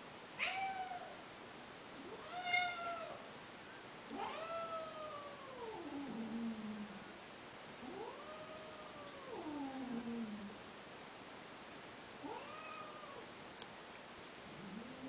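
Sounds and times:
cat yowling: 0:00.4 - 0:01.1, 0:02.0 - 0:03.2, 0:04.1 - 0:06.2, 0:12.2 - 0:13.2.

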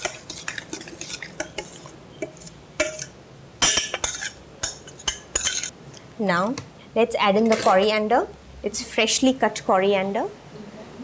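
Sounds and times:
spoon scraping saucepan: 0:00.0 - 0:05.7.

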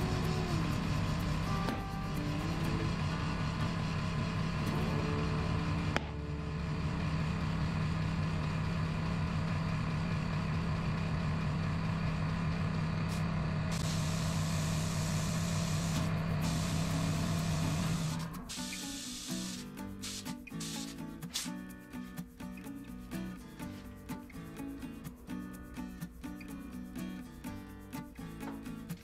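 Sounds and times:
compressed air hissing into tyre: 0:13.1 - 0:21.7.

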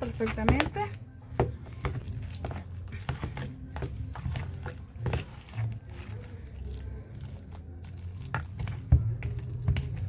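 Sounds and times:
spoon scraping plastic bowl: 0:01.4 - 0:10.0.

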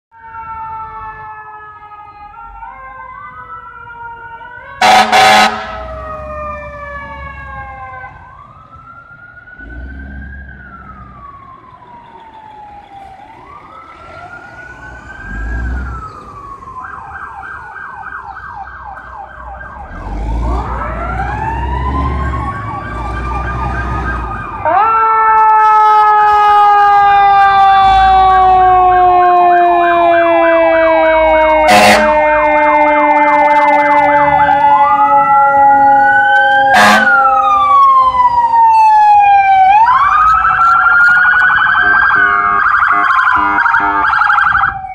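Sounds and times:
fire truck sirens wailing: 0:00.1 - 0:44.9
loud short horn blasts: 0:04.8 - 0:05.8, 0:31.7 - 0:32.2.

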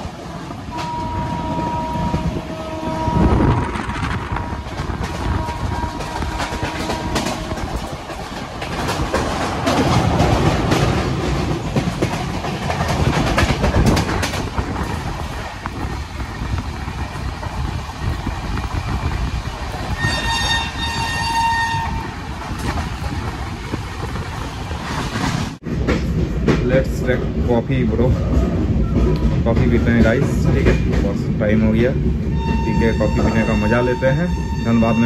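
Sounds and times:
train wheels on rails: 0:00.0 - 0:35.0
train horn: 0:00.7 - 0:07.8, 0:20.0 - 0:22.1
clattering over rail joints: 0:04.4 - 0:16.5.

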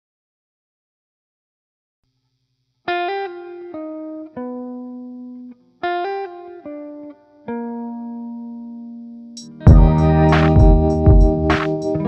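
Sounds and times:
plucked-string melody: 0:07.5 - 0:12.0.

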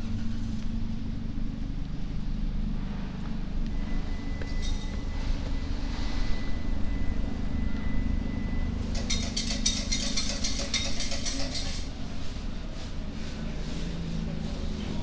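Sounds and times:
street traffic rumble: 0:00.0 - 0:15.0
rapid high-pitched ticking chatter: 0:08.9 - 0:11.8.

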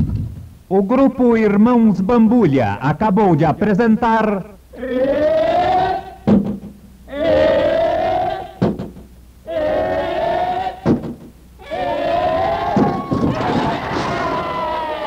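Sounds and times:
sharp knock: 0:06.3 - 0:06.8, 0:08.6 - 0:09.1, 0:10.8 - 0:11.4.

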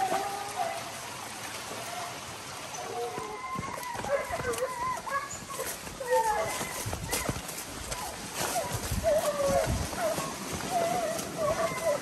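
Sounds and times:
hunting dogs baying: 0:02.9 - 0:12.0
wet rustling: 0:03.2 - 0:12.0.

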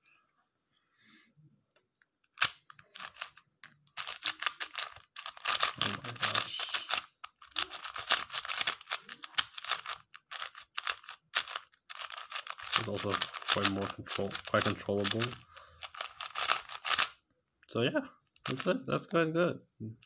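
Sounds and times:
speed cube clicking: 0:02.3 - 0:03.4, 0:04.0 - 0:17.2.

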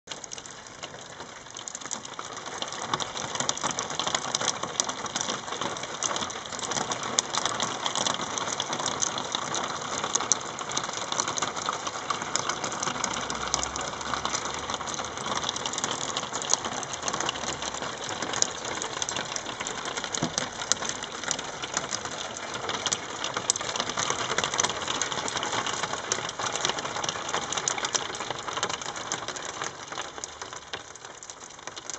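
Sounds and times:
hail ticking on roofs: 0:00.1 - 0:31.9.

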